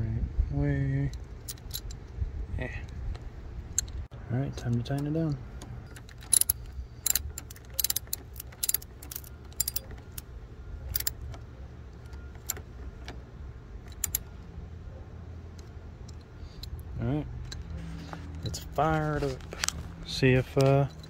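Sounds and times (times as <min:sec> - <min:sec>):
ratchet wrench clicking: 0:06.0 - 0:10.2.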